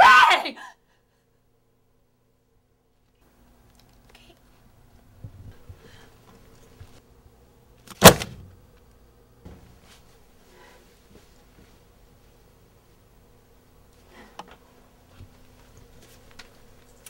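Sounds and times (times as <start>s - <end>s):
faint room hum: 0.0s - 17.0s
paperwork slammed into tray: 7.9s - 8.5s.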